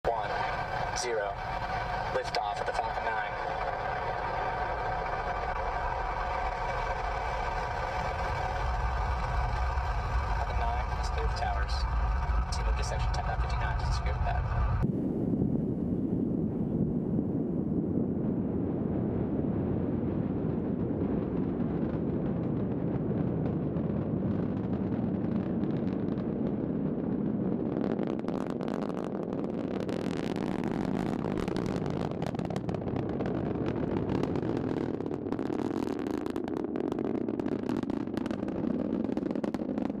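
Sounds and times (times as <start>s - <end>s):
rocket engines low rumble: 0.0s - 40.0s
sharp crackling pops: 24.4s - 40.0s.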